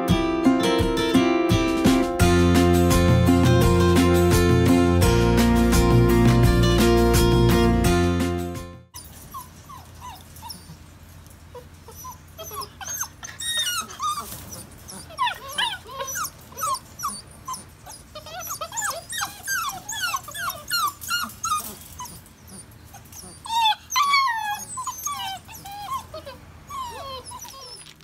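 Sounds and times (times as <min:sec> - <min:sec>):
puppies whimpering and whining: 0:08.9 - 0:28.0.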